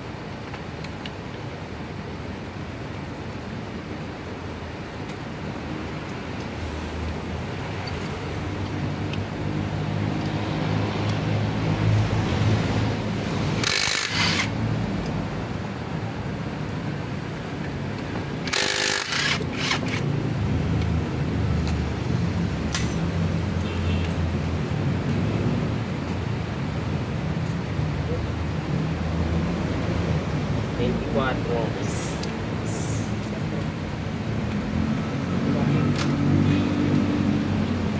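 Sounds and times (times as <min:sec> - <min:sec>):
impact wrench bursts: 0:13.5 - 0:14.6, 0:18.4 - 0:20.1.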